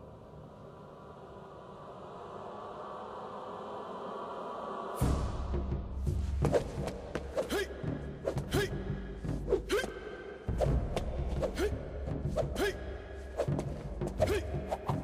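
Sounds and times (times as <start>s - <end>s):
film score with pulsing beat: 5.0s - 15.0s
sword swishes: 6.4s - 8.7s, 13.4s - 15.0s.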